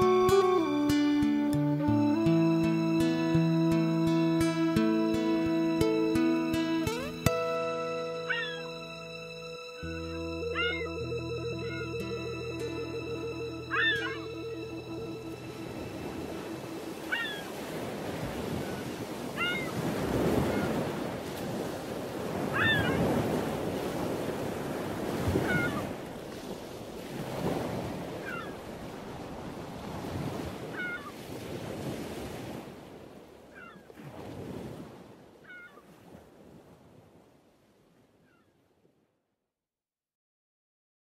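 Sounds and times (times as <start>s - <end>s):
ocean surf washing in: 0.0s - 33.2s
bird crying: 8.2s - 8.8s, 10.4s - 11.0s, 13.7s - 15.0s, 16.4s - 17.6s, 19.4s - 19.8s, 22.5s - 23.1s, 25.4s - 25.9s, 28.2s - 28.6s, 30.7s - 31.2s, 33.5s - 33.9s, 35.4s - 35.8s.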